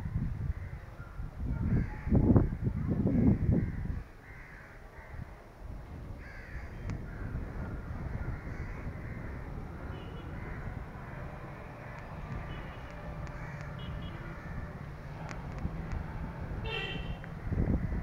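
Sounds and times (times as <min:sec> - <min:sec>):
wind rumble on microphone: 0:00.0 - 0:18.0
crows cawing: 0:03.1 - 0:05.3, 0:06.2 - 0:07.4, 0:08.0 - 0:14.8.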